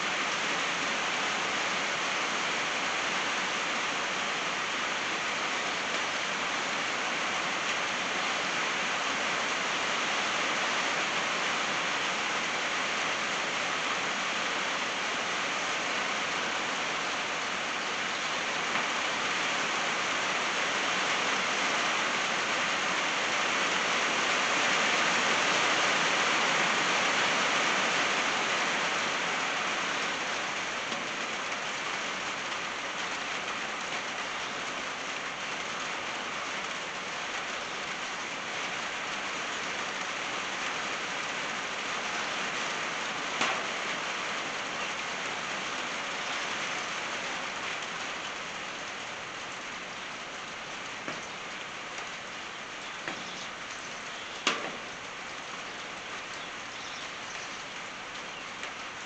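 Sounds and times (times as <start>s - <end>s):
rain on a tin roof: 0.0s - 59.0s
water drips from eave: 16.1s - 59.0s.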